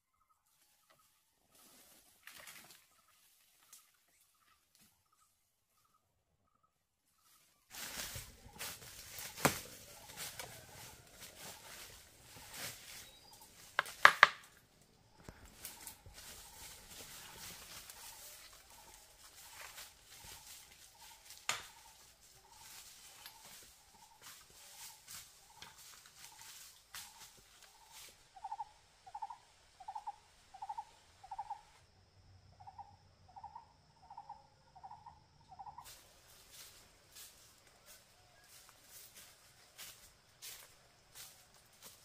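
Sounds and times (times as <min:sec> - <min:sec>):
rustling: 0:07.2 - 0:28.1.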